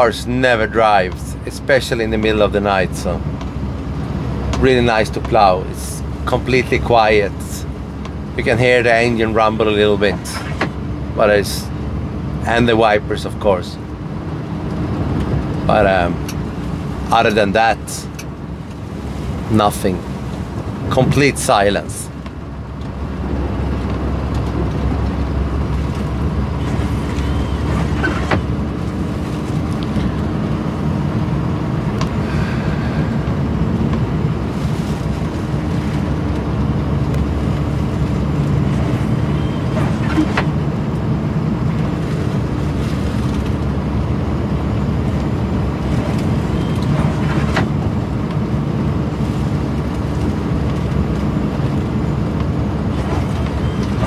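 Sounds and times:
truck diesel engine rumbling: 0:00.0 - 0:54.0
windscreen wipers ticking: 0:14.6 - 0:32.2.

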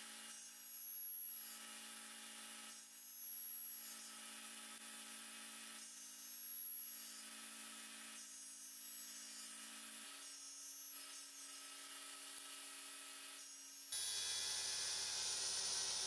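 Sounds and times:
cutter cutting wood: 0:13.9 - 0:16.0
circular cutter humming: 0:14.0 - 0:16.0.

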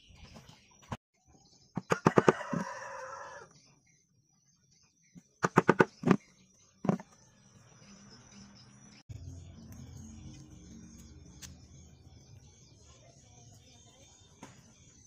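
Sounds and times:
rooster crowing: 0:01.8 - 0:03.5.

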